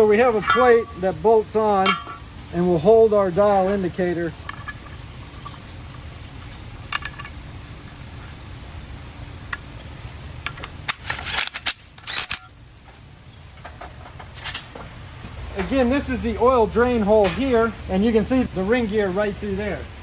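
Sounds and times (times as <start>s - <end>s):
steady low hum: 0.0s - 20.0s
metal tools clicking and clinking: 0.1s - 1.0s, 1.6s - 2.2s, 3.5s - 7.4s, 10.4s - 14.9s
sharp clicks and scrapes: 10.4s - 12.5s.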